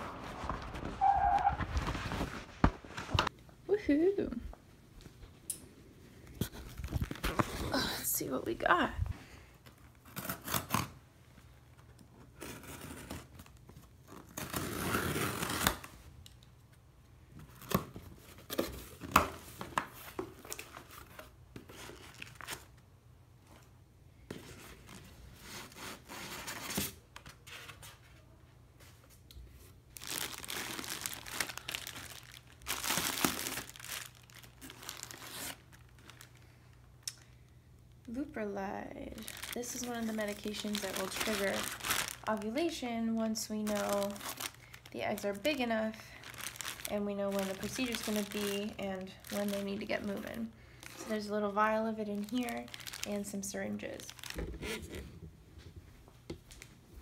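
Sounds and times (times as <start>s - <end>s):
rustling and crinkling: 0.0s - 3.4s, 6.1s - 10.0s, 16.7s - 37.0s, 39.1s - 57.0s
packing tape ripping: 10.0s - 11.0s, 12.4s - 15.9s, 30.0s - 36.3s, 39.2s - 42.4s, 52.3s - 53.3s.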